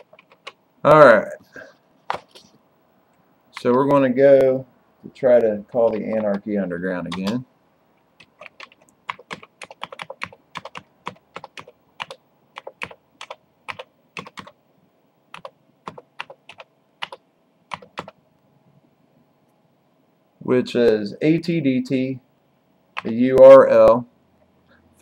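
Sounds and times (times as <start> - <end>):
keyboard keystrokes clicking: 0.0 - 0.6, 5.7 - 6.4, 7.1 - 7.4, 8.2 - 14.6, 15.3 - 18.2.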